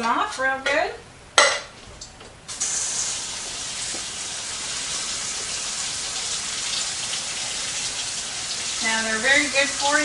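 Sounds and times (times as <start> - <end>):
faucet water running: 2.5 - 10.0.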